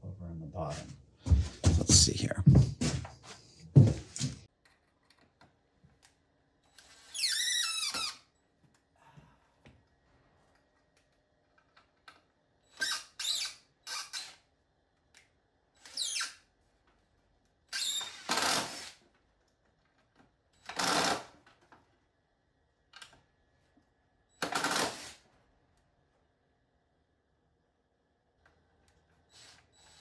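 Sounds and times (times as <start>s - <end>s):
cordless drill driving screws: 12.7s - 14.4s, 17.7s - 19.0s, 20.7s - 21.3s.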